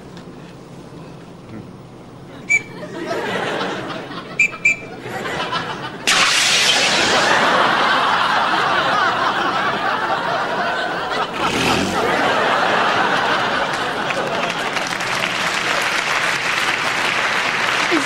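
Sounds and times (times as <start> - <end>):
studio audience laughing: 2.5 - 16.1.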